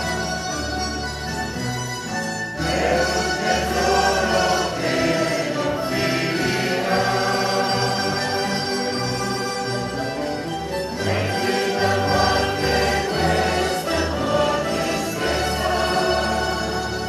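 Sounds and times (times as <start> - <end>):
mandolin orchestra playing: 0.0 - 17.0
group of voices singing: 2.6 - 9.1, 11.0 - 17.0.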